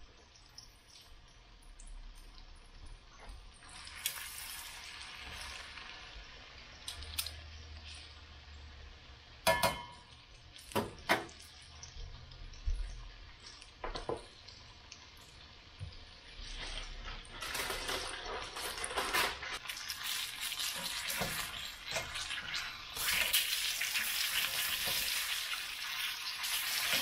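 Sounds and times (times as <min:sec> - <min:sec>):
fish sizzling in grease: 0:03.5 - 0:12.6, 0:13.2 - 0:27.0
metal tongs clacking on pan: 0:09.5 - 0:10.1.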